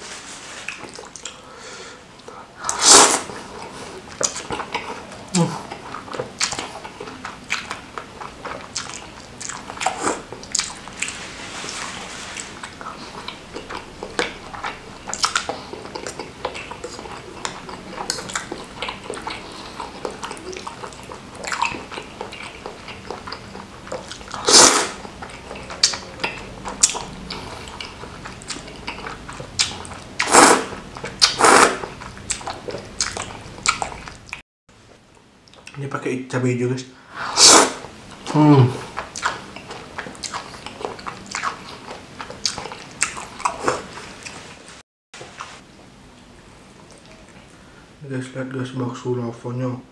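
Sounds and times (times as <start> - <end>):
wet smacking and chewing: 0.6 - 1.4, 2.2 - 34.4, 35.4 - 35.8, 37.8 - 44.5, 46.7 - 47.6
noodles slurped: 2.6 - 34.4, 37.2 - 44.6.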